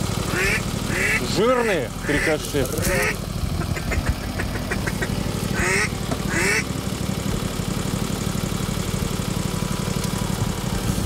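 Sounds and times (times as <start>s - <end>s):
engine idling: 0.0s - 11.0s
duck quacks: 0.3s - 6.6s.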